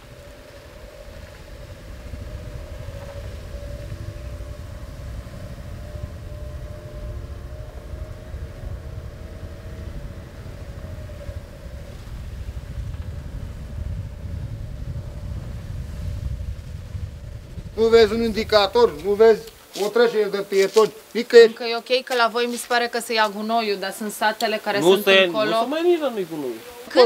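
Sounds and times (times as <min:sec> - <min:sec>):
vehicle engine and road rumble: 0:00.0 - 0:20.0
faint steady hum: 0:00.0 - 0:27.0.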